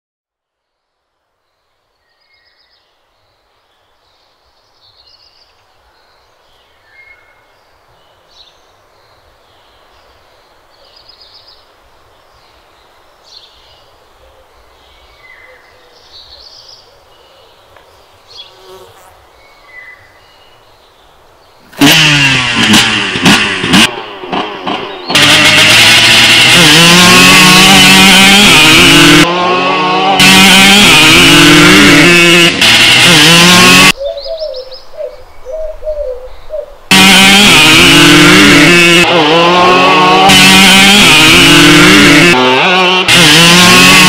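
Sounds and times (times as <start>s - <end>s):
small birds chirping: 1.5s - 21.8s, 34.0s - 36.9s.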